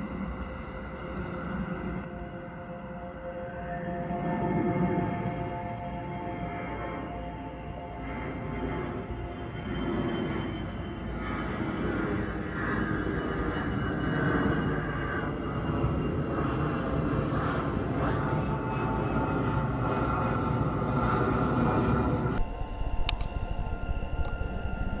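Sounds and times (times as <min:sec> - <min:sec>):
distant engine drone: 0:00.0 - 0:25.0.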